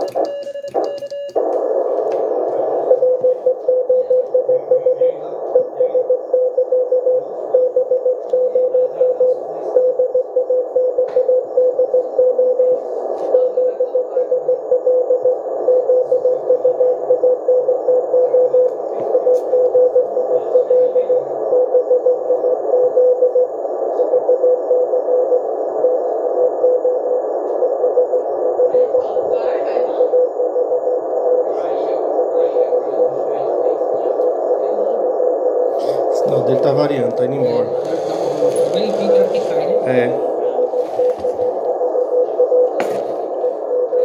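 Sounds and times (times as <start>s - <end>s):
morse code tone: 0.0s - 29.3s, 30.0s - 44.0s
receiver hiss: 0.0s - 44.0s.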